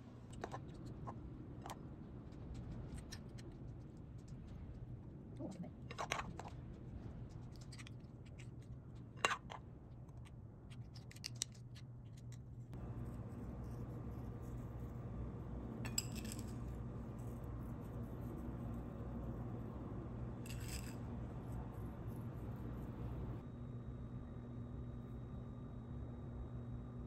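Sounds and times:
steady low hum: 11.6 - 27.0.

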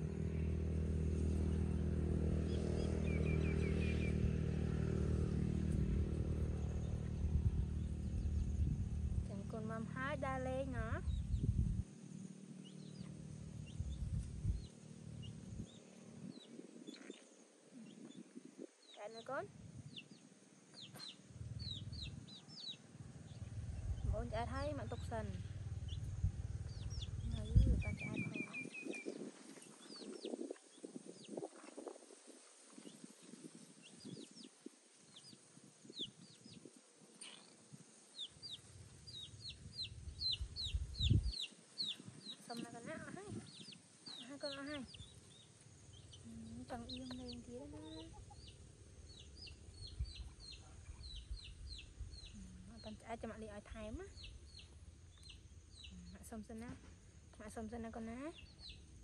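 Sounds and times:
low rumbling noise: 0.0 - 32.2, 37.7 - 59.0
small birds chirping: 0.0 - 59.0
chicks peeping: 18.9 - 32.2, 38.2 - 56.7, 58.0 - 58.9
chickens clucking softly: 46.3 - 48.6.

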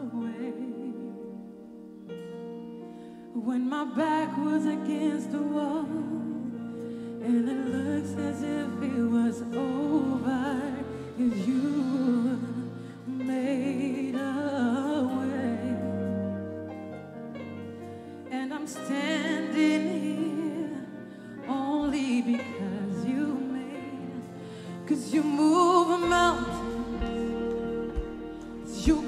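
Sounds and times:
woman singing gospel song: 0.0 - 1.5, 3.3 - 16.7, 18.2 - 29.0
sustained keyboard chords: 21.7 - 29.0.

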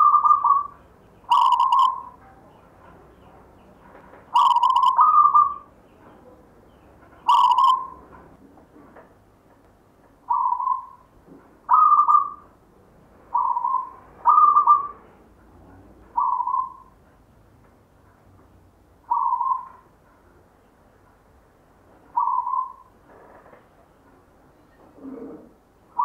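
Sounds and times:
dove cooing: 0.0 - 2.2, 4.3 - 5.7, 7.3 - 8.0, 10.3 - 11.0, 11.7 - 12.4, 13.3 - 15.1, 16.2 - 16.9, 19.1 - 19.8, 22.2 - 22.9, 24.8 - 26.0.

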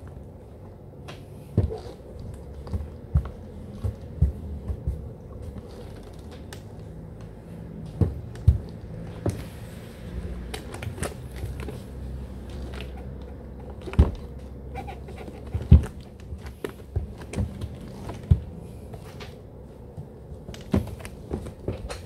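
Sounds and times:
low steady hum: 0.0 - 22.0
skateboard creaking and knocking: 12.4 - 18.5.

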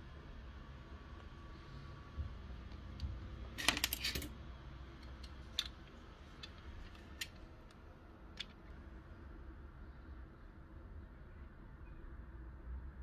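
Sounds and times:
plastic parts clicking: 5.0 - 7.4.

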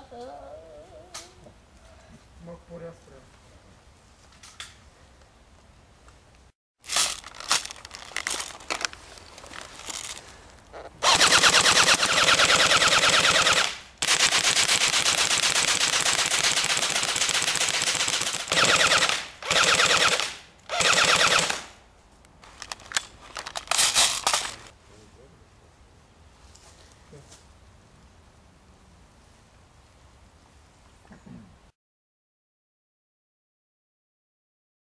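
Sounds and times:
airsoft gun firing full auto: 11.0 - 21.8.

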